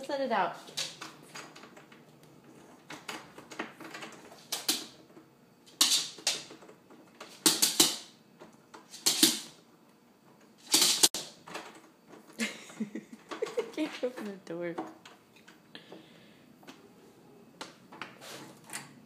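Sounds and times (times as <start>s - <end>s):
dog claws clicking on wood floor: 2.9s - 5.0s, 5.7s - 8.0s.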